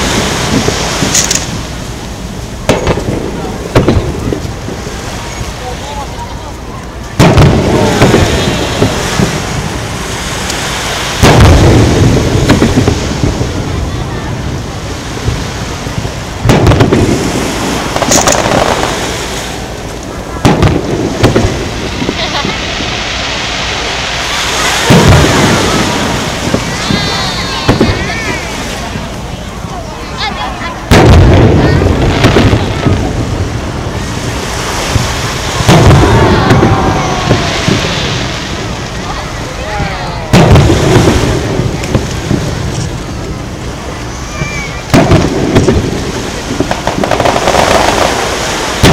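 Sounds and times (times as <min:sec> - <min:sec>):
sharp firework cracks: 0:00.0 - 0:04.9, 0:07.1 - 0:13.8, 0:15.3 - 0:28.8, 0:30.8 - 0:39.2, 0:40.2 - 0:43.4, 0:44.4 - 0:48.9
fireworks boom with low rumble: 0:00.0 - 0:48.9
small firework pops: 0:00.5 - 0:01.6, 0:02.7 - 0:04.6, 0:16.4 - 0:19.1, 0:19.9 - 0:22.6, 0:40.3 - 0:43.4, 0:44.4 - 0:48.9
firework shells bursting: 0:02.6 - 0:04.6, 0:16.4 - 0:28.4, 0:44.8 - 0:48.9.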